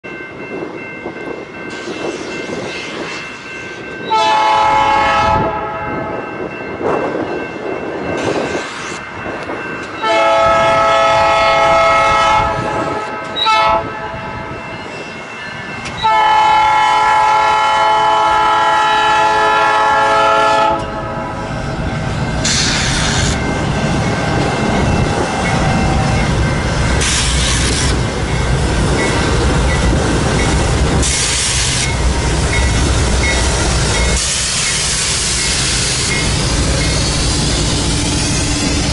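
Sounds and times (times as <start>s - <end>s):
crossing bell ringing: 0.0s - 38.9s
diesel locomotives rumbling: 0.0s - 38.9s
locomotive air horn blasts: 4.1s - 6.1s, 10.0s - 14.4s, 16.0s - 21.3s.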